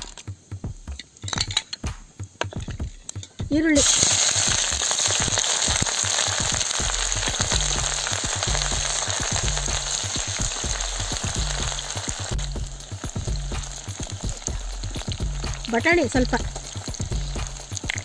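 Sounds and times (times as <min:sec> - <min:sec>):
onions sizzling in hot oil: 0:03.7 - 0:18.0.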